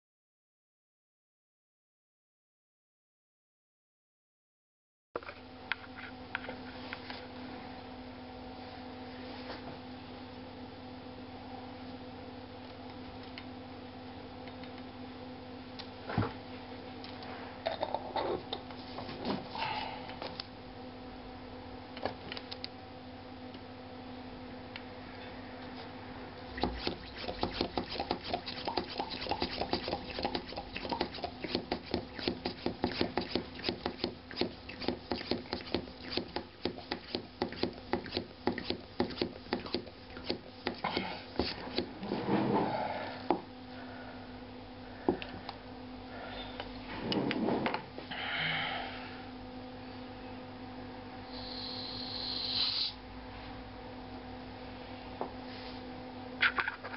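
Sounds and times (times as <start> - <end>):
faint steady hum: 5.2 - 56.9
hand vacuum pump strokes: 26.5 - 42.1
scraping rubs: 26.6 - 42.6
short high air hiss: 51.3 - 53.0.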